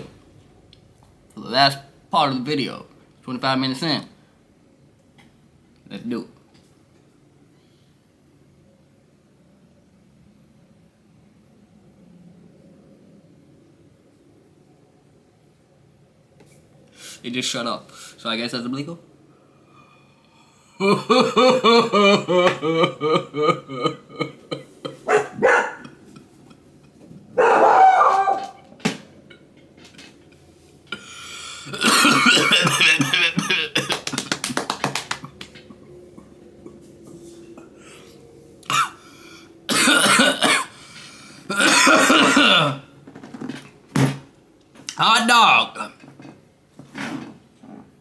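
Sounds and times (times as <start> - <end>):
man coughing: 31.0 - 34.2, 38.7 - 39.1, 39.7 - 40.8, 41.5 - 42.9.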